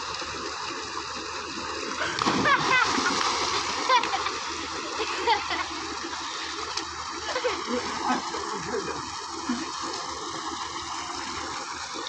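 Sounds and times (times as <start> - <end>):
water gushing from pipe: 0.0 - 12.0
person wading and splashing: 2.0 - 5.3.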